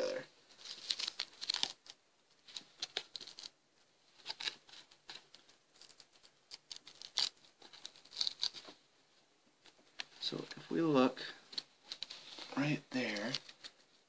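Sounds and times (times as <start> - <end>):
tape peeling off canvas: 4.2 - 8.8.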